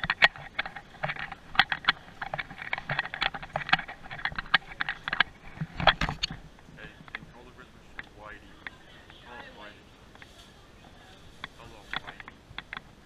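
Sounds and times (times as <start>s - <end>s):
rapid light clicks and taps: 0.0s - 9.2s, 11.4s - 13.0s.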